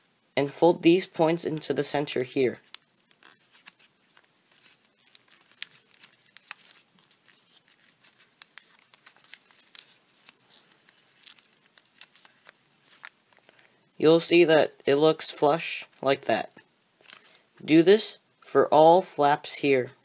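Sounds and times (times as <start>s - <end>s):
paper crinkling as folded: 2.4s - 13.8s, 16.4s - 17.4s.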